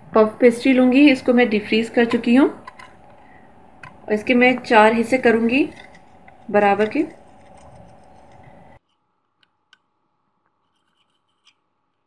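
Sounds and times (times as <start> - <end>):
steady background hum: 0.0 - 8.8.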